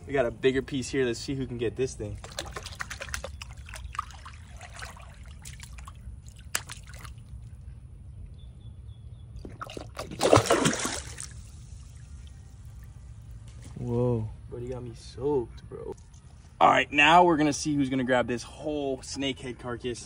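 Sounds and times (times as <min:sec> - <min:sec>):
small water splashes and trickles: 0:02.0 - 0:08.4, 0:09.3 - 0:13.8
fish striking with loud splash: 0:09.6 - 0:11.4.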